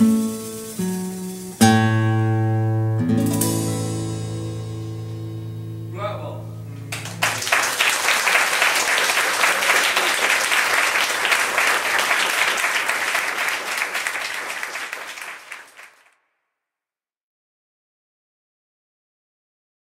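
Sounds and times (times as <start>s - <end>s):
audience applauding: 6.9s - 16.1s.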